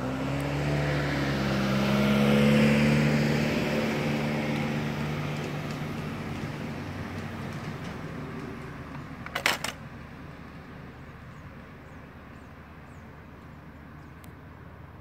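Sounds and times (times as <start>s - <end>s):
vehicle engine hum: 0.0s - 15.0s
loud clatter of knocks: 9.0s - 9.8s.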